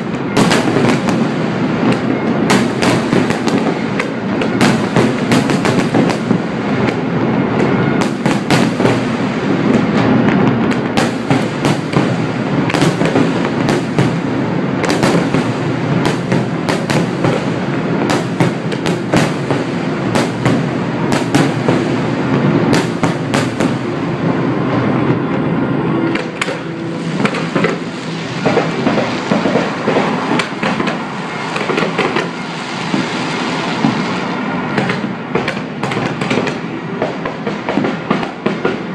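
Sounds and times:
continuous rumble: 0.0s - 38.9s
fireworks bangs and crackling: 0.0s - 38.9s.

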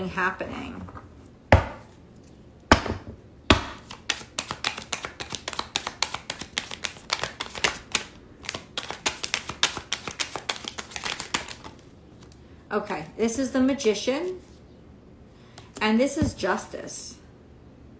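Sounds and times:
cards being shuffled: 3.8s - 12.4s.

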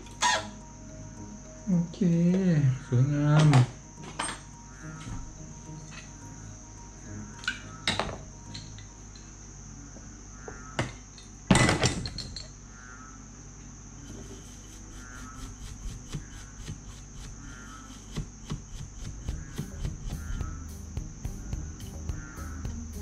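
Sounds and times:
cotton swab scrubbing circuit board: 14.2s - 20.4s.

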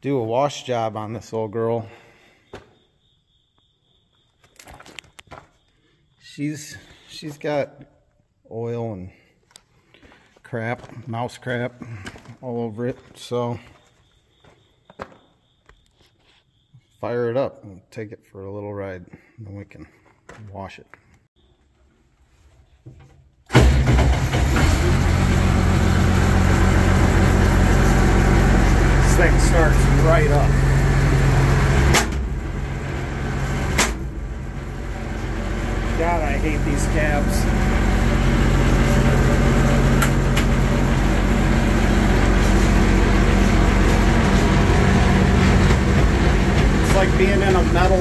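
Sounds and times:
diesel tractor engine idling: 23.6s - 48.0s.

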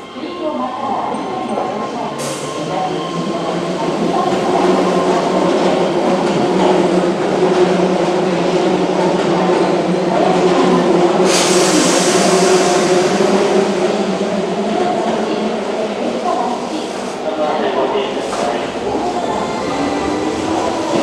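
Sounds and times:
air hiss: 11.2s - 14.0s.

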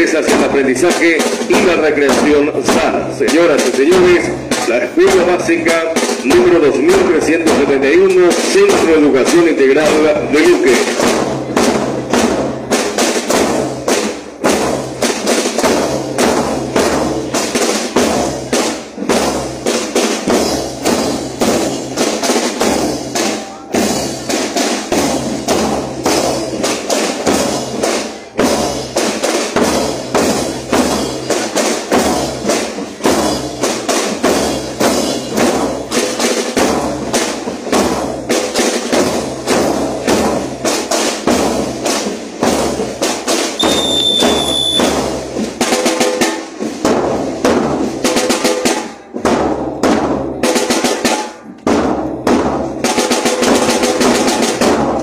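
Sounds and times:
marching drum corps: 0.0s - 55.0s.

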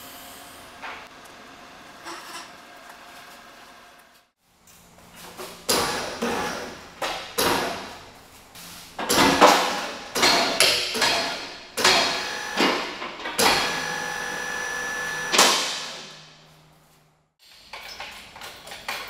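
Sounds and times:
sharp metallic clanks and knocks: 9.0s - 13.8s.

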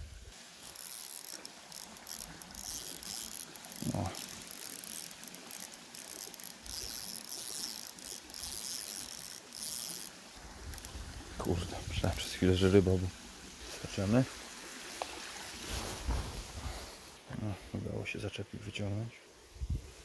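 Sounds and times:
fishing reel ticking whir: 0.5s - 11.3s.

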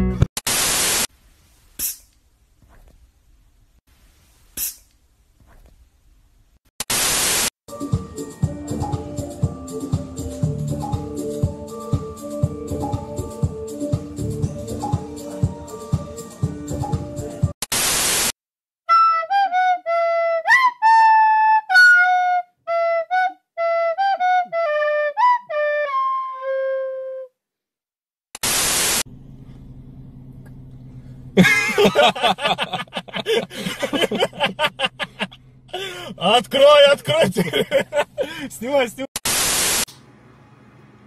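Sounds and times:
static hiss: 0.4s - 2.2s, 6.8s - 7.5s, 17.6s - 18.3s, 28.4s - 29.0s, 39.2s - 39.9s
slow flute-like melody: 7.7s - 17.3s, 18.9s - 27.4s.

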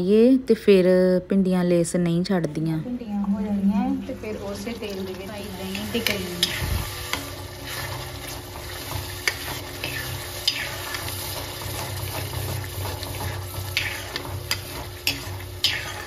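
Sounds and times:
spatula scraping gravy frying in oil: 4.5s - 16.0s.

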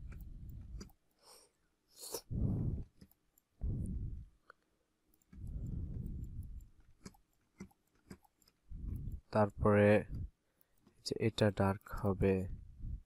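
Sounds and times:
computer mouse clicks: 0.0s - 1.2s, 2.8s - 3.5s, 5.1s - 9.3s
muffled puffs on microphone: 2.3s - 2.9s.

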